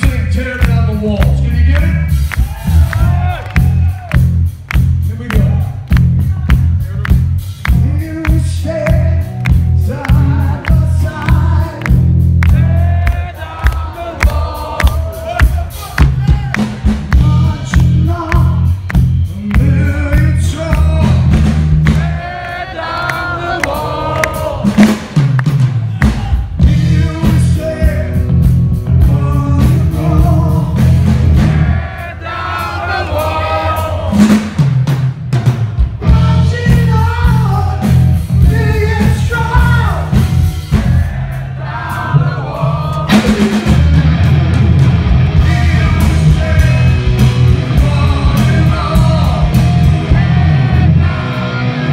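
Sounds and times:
man singing: 0:00.0 - 0:02.3, 0:05.0 - 0:24.9, 0:25.9 - 0:31.0, 0:36.0 - 0:40.2, 0:41.9 - 0:44.0, 0:45.3 - 0:51.8
bass guitar: 0:00.0 - 0:51.9
drums: 0:00.0 - 0:51.9
electric guitar: 0:43.0 - 0:51.9.

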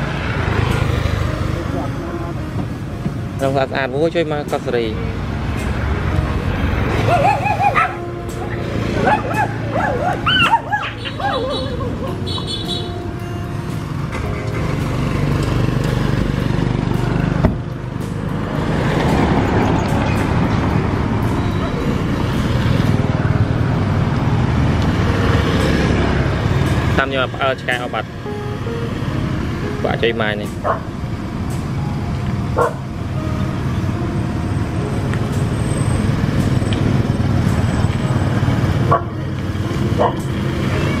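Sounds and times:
vehicle passing close by: 0:00.0 - 0:02.9, 0:03.6 - 0:13.0, 0:13.6 - 0:41.0
road traffic rumble: 0:00.0 - 0:41.0
vehicle engine running: 0:00.0 - 0:41.0
dog barks: 0:07.1 - 0:08.0, 0:09.0 - 0:11.7, 0:30.6 - 0:30.8, 0:32.6 - 0:32.8, 0:38.9 - 0:39.2, 0:40.0 - 0:40.3.

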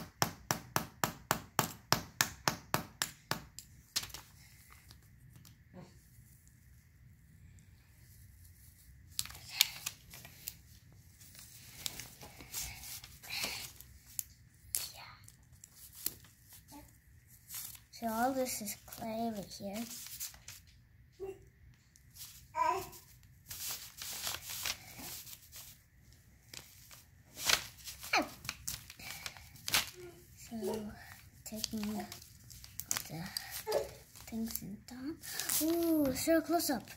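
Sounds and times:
paper rustling: 0:03.8 - 0:05.4, 0:15.5 - 0:20.8, 0:22.0 - 0:36.7.

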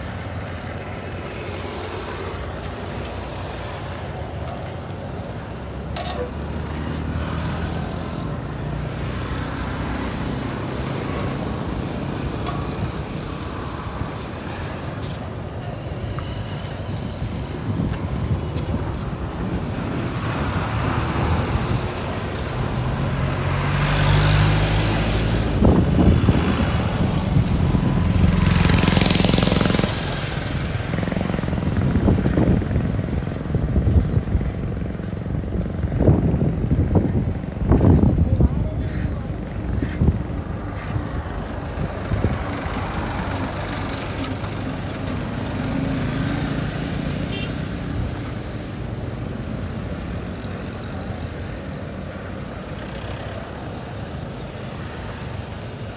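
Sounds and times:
vehicle passing: 0:20.0 - 0:33.6.

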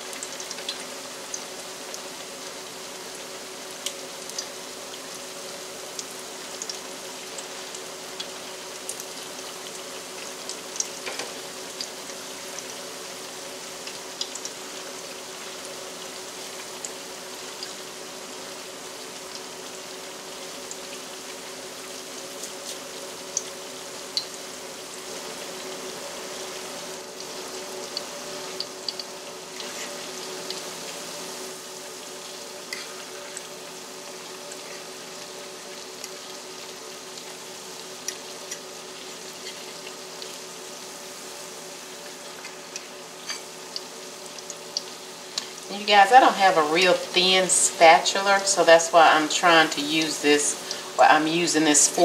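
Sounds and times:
oil popping and crackling: 0:00.0 - 0:05.2, 0:13.8 - 0:17.9, 0:25.0 - 0:41.0, 0:41.7 - 0:45.9
patties sizzling in oil: 0:00.0 - 0:52.0.

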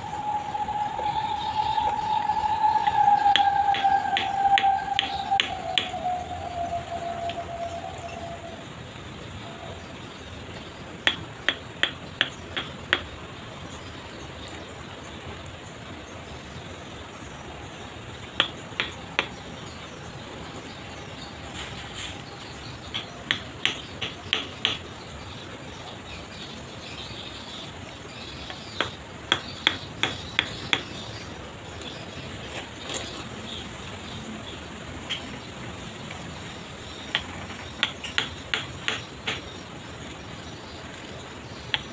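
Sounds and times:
tool tapping stone: 0:11.0 - 0:13.1, 0:18.4 - 0:19.4, 0:23.0 - 0:24.8, 0:28.5 - 0:30.9, 0:37.1 - 0:39.5.

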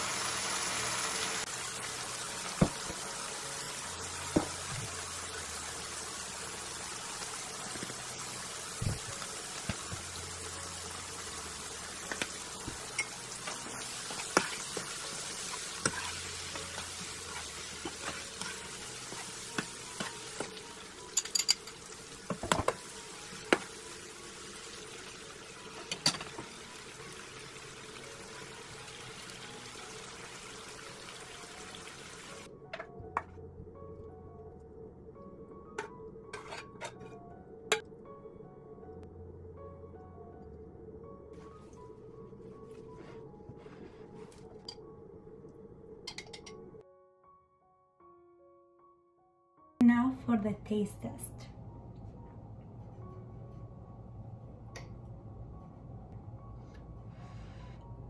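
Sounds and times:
food sizzling in a skillet: 0:00.0 - 0:32.5.

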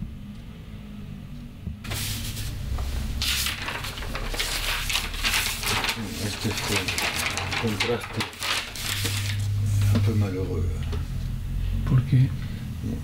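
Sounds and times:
low steady hum: 0:00.0 - 0:13.0
paper sheets rustling: 0:01.9 - 0:10.2.

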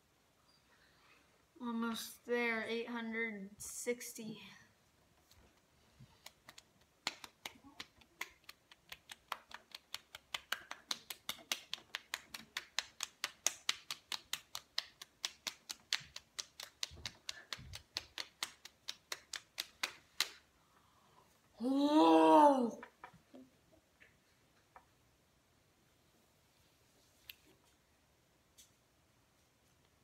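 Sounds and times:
hands slapping cheeks: 0:06.2 - 0:20.5.

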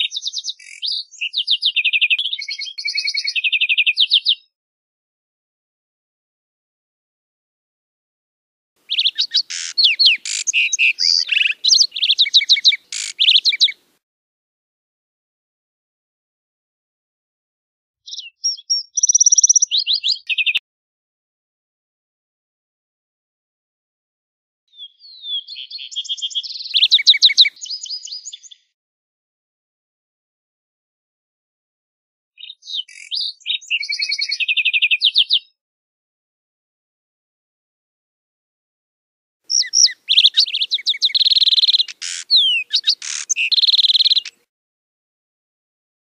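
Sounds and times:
sparrow singing: 0:00.0 - 0:04.6, 0:08.8 - 0:13.9, 0:18.1 - 0:20.6, 0:24.7 - 0:28.8, 0:32.4 - 0:35.6, 0:39.5 - 0:44.5.

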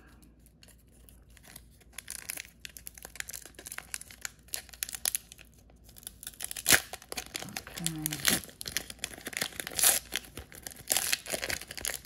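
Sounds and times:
foil wrapper crinkling and tearing: 0:00.6 - 0:12.0.

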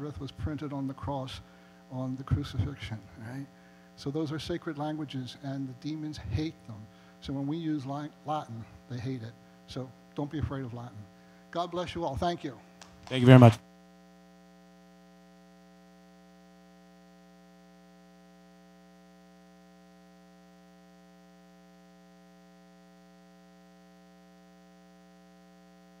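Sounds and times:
electrical mains hum: 0:00.0 - 0:26.0.

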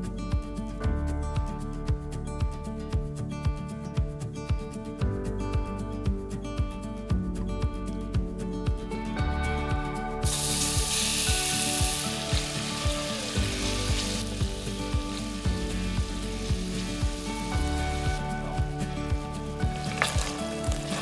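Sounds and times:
background music with steady beat: 0:00.0 - 0:21.0
chicken sizzling in hot oil: 0:10.2 - 0:21.0.

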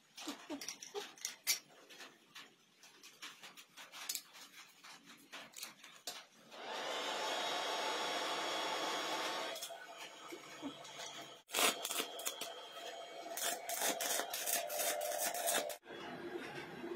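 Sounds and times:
welding arc crackling: 0:11.2 - 0:12.6, 0:13.3 - 0:15.8
welding arc hissing: 0:11.5 - 0:12.5, 0:13.3 - 0:15.8.

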